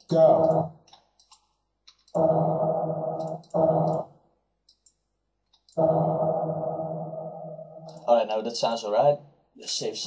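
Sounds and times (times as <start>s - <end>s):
droning reverberant vocal tone: 5.8s - 8.0s.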